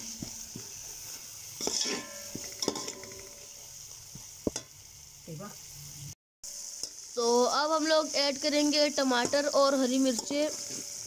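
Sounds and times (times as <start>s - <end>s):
spices sizzling in oil: 0.0s - 11.0s
spoon stirring and scraping pot: 0.1s - 3.6s, 10.1s - 11.0s
spoon clinking on pot: 1.6s - 3.4s.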